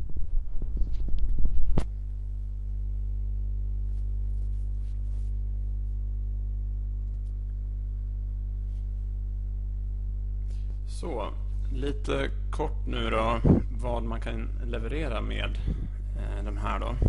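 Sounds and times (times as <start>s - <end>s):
mains hum: 0.0s - 17.0s
click: 7.0s - 7.6s.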